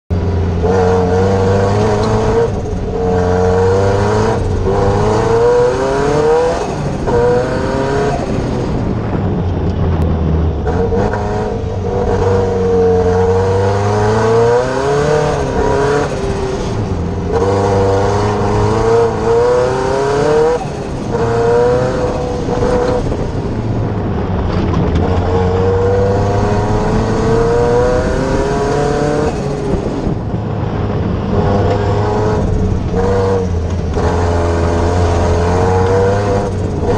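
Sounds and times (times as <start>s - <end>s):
racing engine revving hard: 0.6s - 8.9s, 10.6s - 23.6s, 25.0s - 30.3s, 31.3s - 36.9s.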